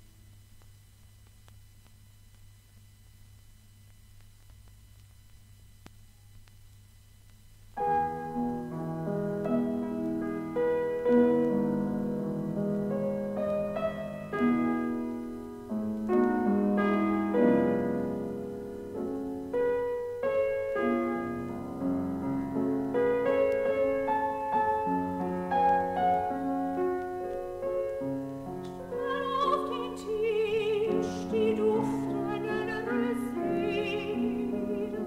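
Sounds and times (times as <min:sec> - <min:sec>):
slow solo piano: 0:07.8 - 0:29.0.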